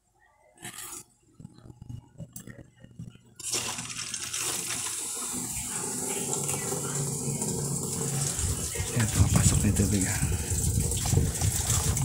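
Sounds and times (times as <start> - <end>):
low hum of water valve: 3.4 - 12.0
water rushing into washing machine: 3.4 - 12.0.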